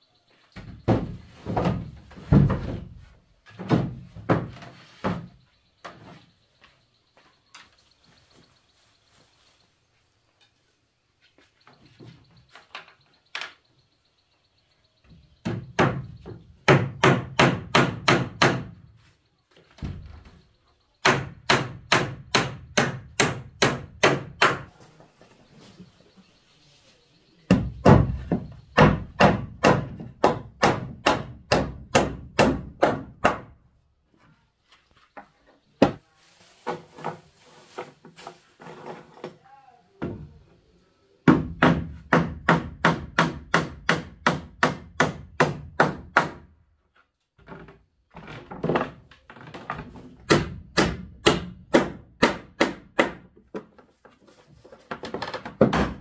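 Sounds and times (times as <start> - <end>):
hammer nailing wooden planks: 15.4 - 18.8, 21.0 - 24.7, 27.5 - 33.6, 41.2 - 46.5, 47.4 - 53.7, 55.0 - 56.0.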